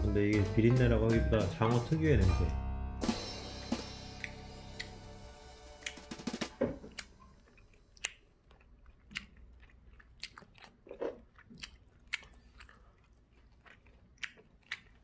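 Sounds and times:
wet lip-smacking: 0:04.2 - 0:05.0, 0:05.8 - 0:06.4, 0:07.0 - 0:15.0
person chewing: 0:04.2 - 0:05.1, 0:05.7 - 0:15.0.

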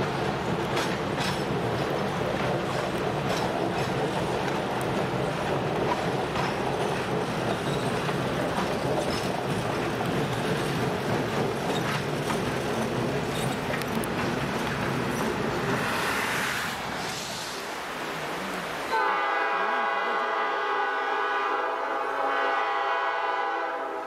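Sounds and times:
train wheels clicking on rails: 0:00.0 - 0:17.8
train rumble: 0:00.0 - 0:24.0.

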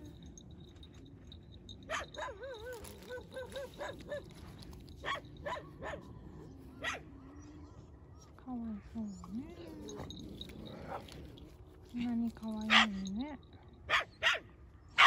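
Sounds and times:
dogs barking: 0:00.0 - 0:08.0, 0:12.5 - 0:15.0
dogs whining yelps: 0:01.7 - 0:08.3.

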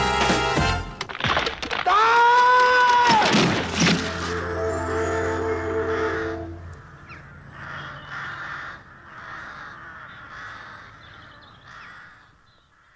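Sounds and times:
held music chord: 0:04.0 - 0:08.0
crow cawing: 0:05.8 - 0:12.9.

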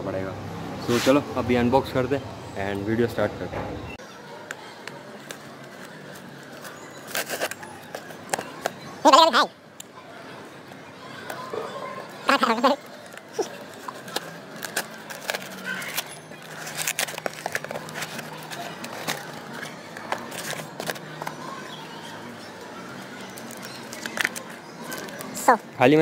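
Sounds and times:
cardboard tearing and crackling: 0:13.4 - 0:21.2.

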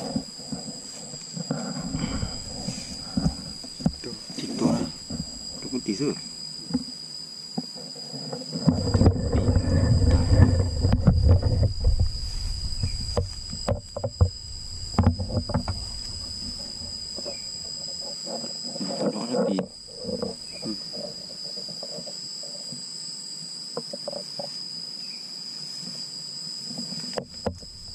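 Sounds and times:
insects chirring: 0:00.0 - 0:27.9
low rustling rumble: 0:08.9 - 0:17.9.

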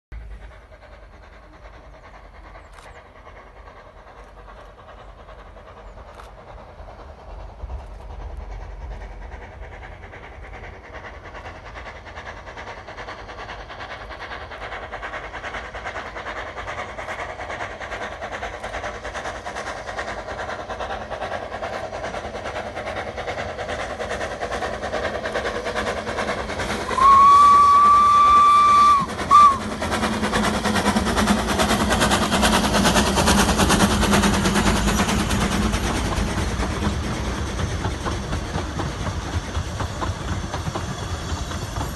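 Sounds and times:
steam train running on rails: 0:00.1 - 0:41.9
steam whistle: 0:26.8 - 0:29.7.

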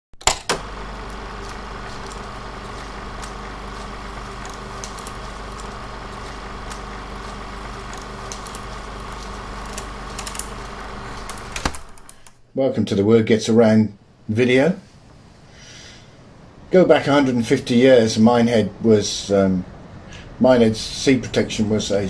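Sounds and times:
crackles and clicks: 0:00.2 - 0:12.4
motor-like hum: 0:00.3 - 0:12.5.

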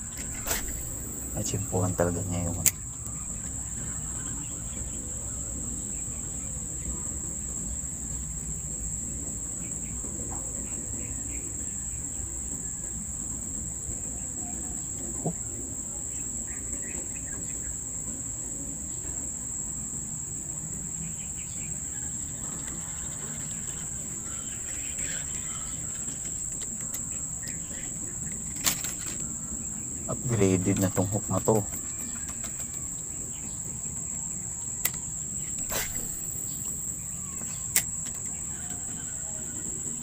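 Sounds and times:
crickets chirping: 0:00.0 - 0:40.0
sharp click: 0:02.6 - 0:02.8.

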